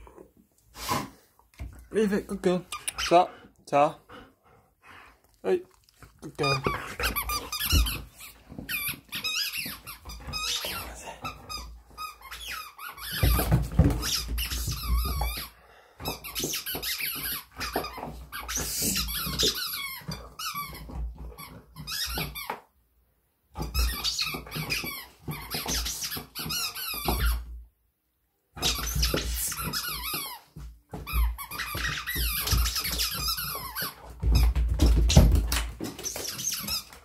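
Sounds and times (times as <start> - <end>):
squeaky toy squeaking: 6.4 - 10.8, 11.5 - 15.4, 16.1 - 22.5, 23.6 - 27.4, 31.0 - 34.5, 35.9 - 37.0.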